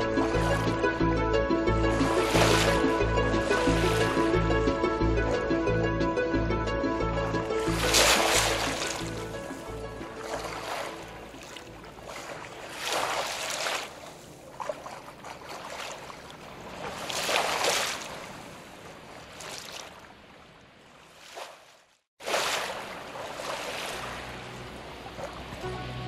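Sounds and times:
sea waves washing in: 0.0s - 5.6s, 7.4s - 21.4s, 22.2s - 26.0s.

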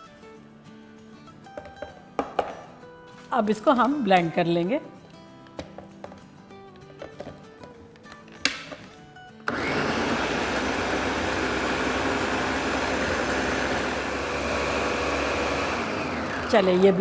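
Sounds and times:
blender running: 9.5s - 17.0s.

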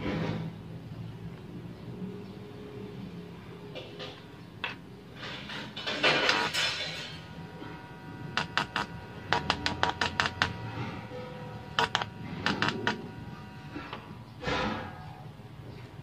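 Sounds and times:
steady low hum: 0.0s - 16.0s
audio jack clicks and crackles: 7.7s - 11.0s, 11.6s - 13.2s.

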